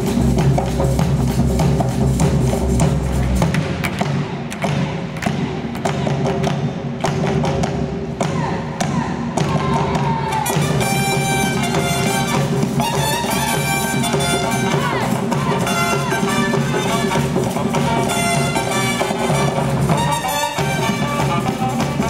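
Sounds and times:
drums and percussion: 0:00.0 - 0:22.0
trumpet and saxophone melody: 0:10.4 - 0:22.0.

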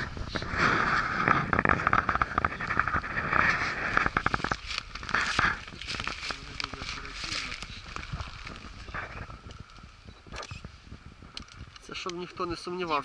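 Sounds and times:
dry leaves crackling and rustling: 0:01.6 - 0:10.0.

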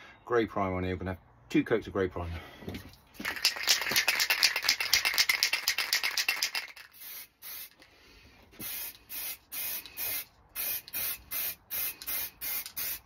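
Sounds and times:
aerosol can ball rattling: 0:03.2 - 0:07.8, 0:08.6 - 0:13.0
aerosol spray hissing bursts: 0:06.9 - 0:07.8, 0:08.6 - 0:13.0.

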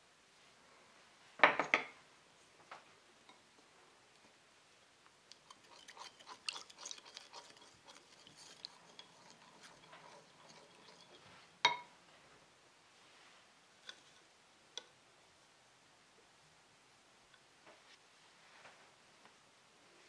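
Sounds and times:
spatula scraping glass bowl: 0:05.4 - 0:11.6.

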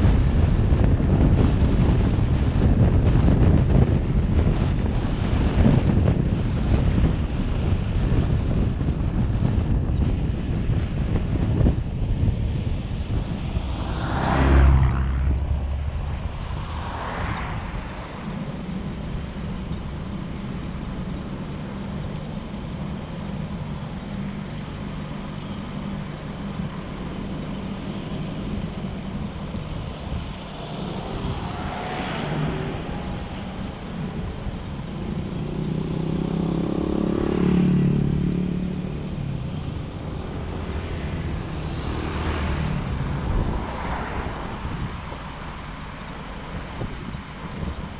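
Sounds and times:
vehicles passing: 0:00.0 - 0:47.9
car engine idling: 0:17.8 - 0:35.8.

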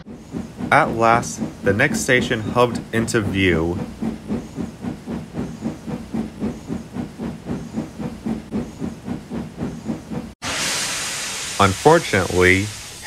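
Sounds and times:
steam locomotive chuffing: 0:00.0 - 0:13.0.

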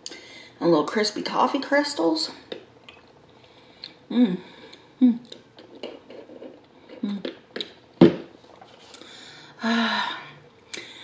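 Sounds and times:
person chewing with wet clicks: 0:02.5 - 0:05.6
closed-mouth hums: 0:03.6 - 0:05.4, 0:06.8 - 0:07.7.

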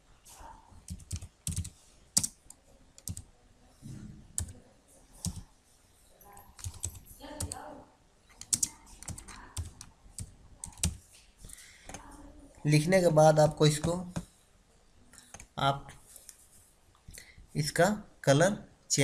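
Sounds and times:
computer keyboard typing: 0:00.8 - 0:03.3, 0:04.3 - 0:04.6, 0:05.2 - 0:05.5, 0:06.4 - 0:07.6, 0:08.3 - 0:12.1, 0:13.4 - 0:14.3, 0:15.2 - 0:15.6.

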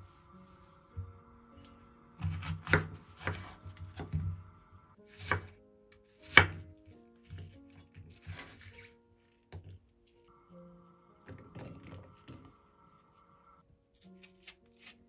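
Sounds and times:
knife chopping on wooden board: 0:02.2 - 0:04.3, 0:05.1 - 0:05.6, 0:06.2 - 0:06.6.

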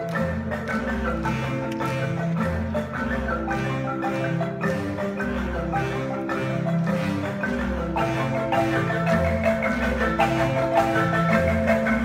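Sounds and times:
marimba ensemble playing: 0:00.0 - 0:12.0.

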